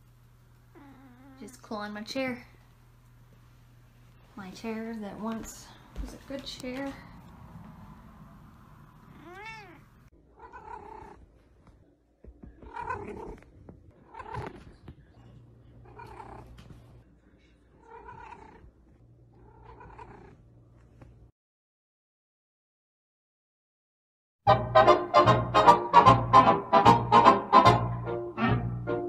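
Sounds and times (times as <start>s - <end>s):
kitten meowing: 9.1s - 11.2s.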